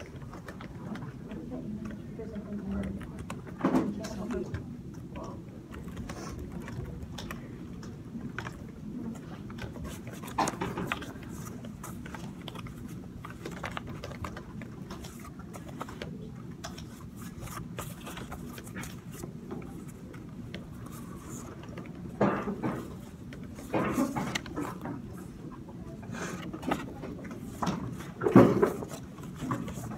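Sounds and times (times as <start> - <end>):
low room hum: 0.0 - 29.9
small handling noises: 0.0 - 29.9
paper sheets rustling: 8.3 - 29.9.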